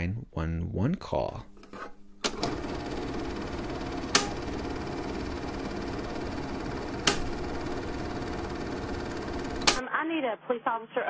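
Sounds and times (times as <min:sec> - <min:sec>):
recording hiss and hum: 0:00.0 - 0:02.3
sharp clicks: 0:07.0 - 0:07.4, 0:09.6 - 0:09.8.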